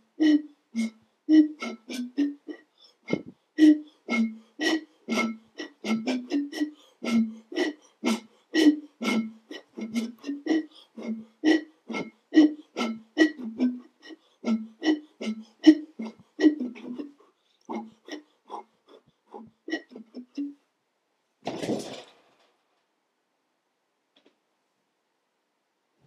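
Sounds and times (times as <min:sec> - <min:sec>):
bottles played as polka music: 0:00.0 - 0:18.6, 0:19.3 - 0:20.6.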